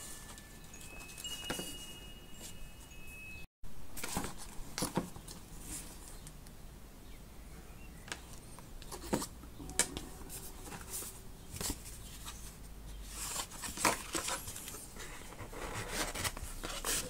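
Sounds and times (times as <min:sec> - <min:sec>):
paper and cloth rustling: 0:09.9 - 0:17.0.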